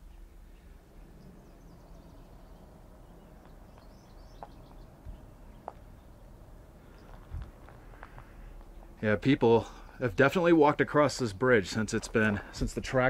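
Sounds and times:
faint high bird chirps: 0.0 - 6.2
low rumble: 0.0 - 9.0.

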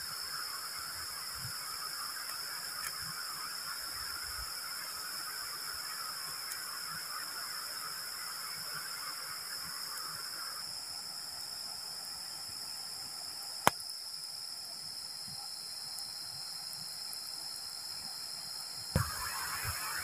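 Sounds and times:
lower insect trill: 0.0 - 20.0
night insects trilling: 0.0 - 20.0
sharp snap: 13.6 - 13.9.

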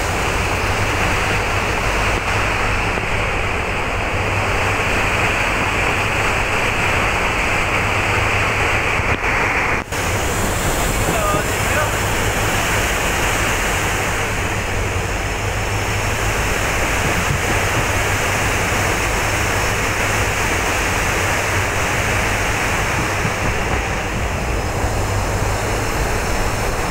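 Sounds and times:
train running: 0.0 - 26.9
floodwater pouring through gates: 10.0 - 26.9.

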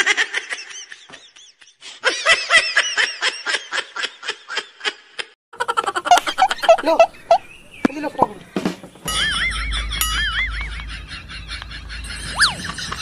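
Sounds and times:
high-pitched laughing: 2.0 - 7.2, 9.2 - 13.0.

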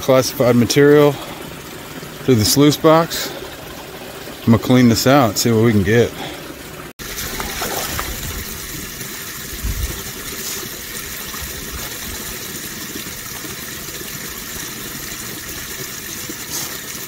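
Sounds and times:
running water: 0.0 - 17.0.

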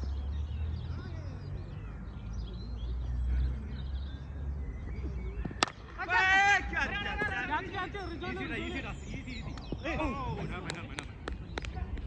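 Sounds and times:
small birds chirping: 0.0 - 12.0
sharp crack: 5.6 - 5.9.

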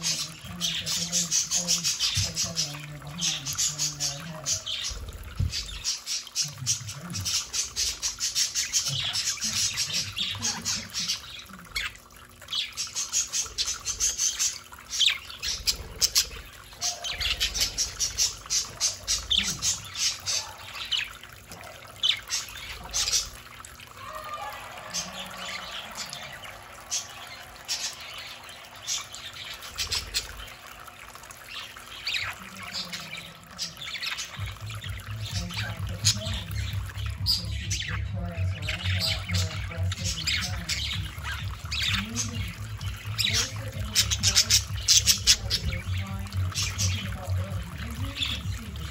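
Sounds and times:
budgerigars chirping and chattering: 0.0 - 48.9
water splashing and trickling: 0.0 - 48.9.

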